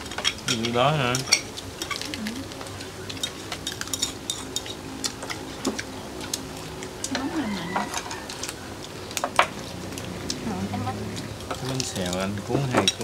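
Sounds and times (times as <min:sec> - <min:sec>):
utensils clinking on dishes: 0:00.0 - 0:02.1, 0:03.1 - 0:06.4, 0:07.0 - 0:08.5, 0:11.4 - 0:13.0
murmur of a voice: 0:10.4 - 0:12.9.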